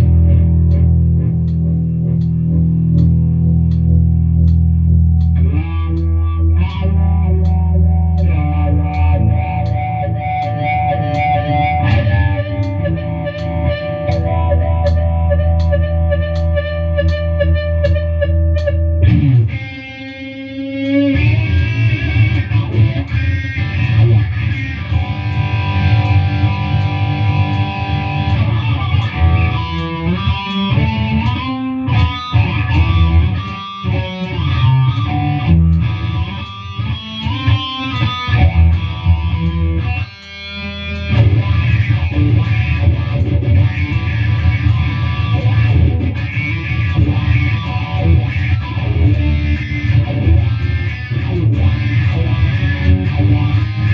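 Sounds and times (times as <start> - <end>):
backing track bass and drums: 0.0 - 6.1, 18.6 - 19.6
electric guitar: 0.0 - 53.9.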